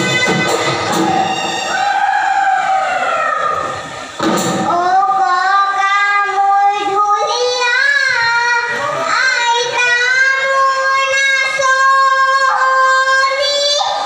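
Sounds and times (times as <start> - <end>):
high voice singing: 4.6 - 14.0.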